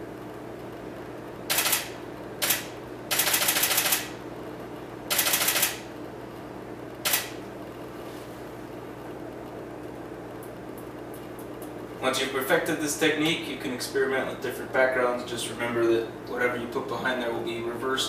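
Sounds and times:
camera shutter clicking rapidly: 1.5s - 4.1s, 5.1s - 5.8s, 7.1s - 7.4s.

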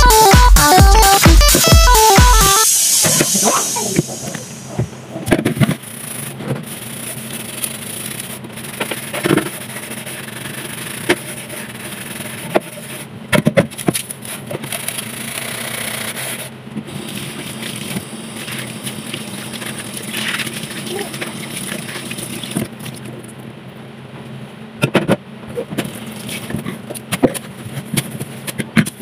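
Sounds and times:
tap water running: 17.0s - 23.0s.

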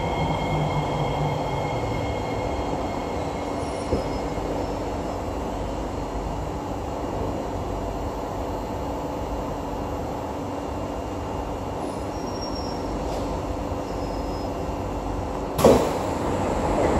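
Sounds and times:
faint high squeals: 0.0s - 5.0s, 11.9s - 13.0s, 13.8s - 14.6s
train running rumble: 0.0s - 16.9s.

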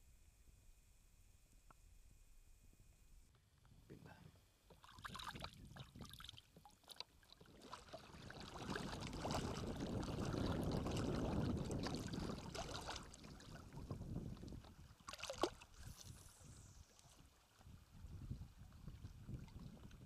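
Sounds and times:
water noise: 4.4s - 20.0s
wind rumbling on microphone: 5.1s - 6.3s, 7.4s - 20.0s.

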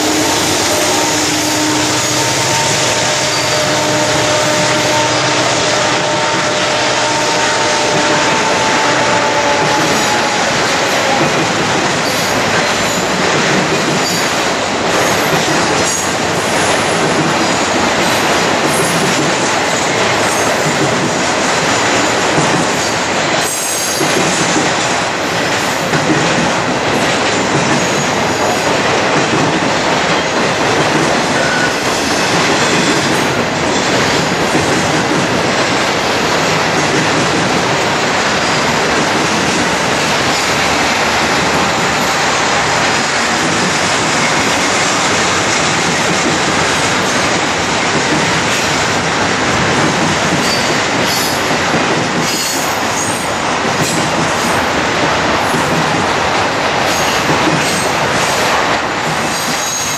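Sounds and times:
locomotive humming tone: 0.0s - 11.8s
steel wheels rushing on rail: 0.0s - 59.9s.

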